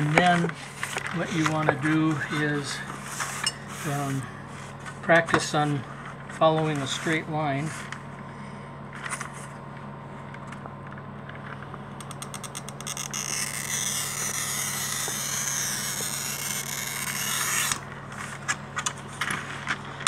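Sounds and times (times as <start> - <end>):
glass cutter scoring glass: 12.1 - 17.8.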